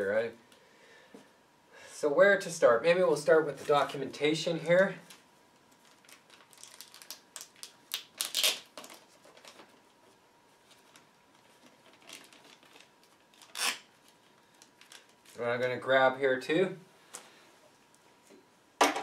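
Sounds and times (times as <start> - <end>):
paper crinkling and rustling: 5.0 - 15.4.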